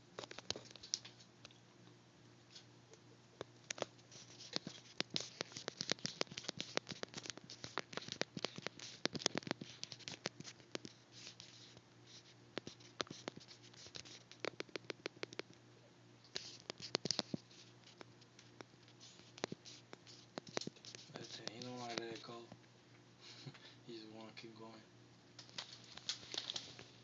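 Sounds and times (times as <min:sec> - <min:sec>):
steady low hum: 0:00.0 - 0:27.0
rapid scratching and clicking: 0:00.2 - 0:01.3, 0:03.4 - 0:15.6, 0:16.3 - 0:22.5, 0:25.4 - 0:27.0.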